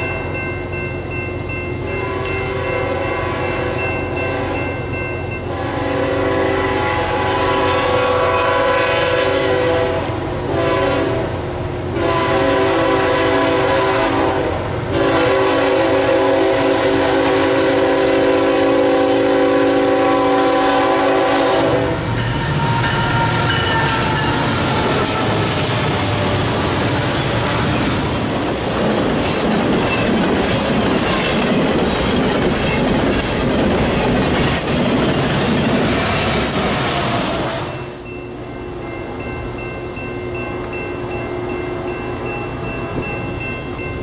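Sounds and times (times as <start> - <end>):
locomotive rumbling past: 0.0 - 44.0
locomotive air horn blasts: 2.0 - 4.7, 5.5 - 25.6
train wheel clatter: 21.4 - 37.6.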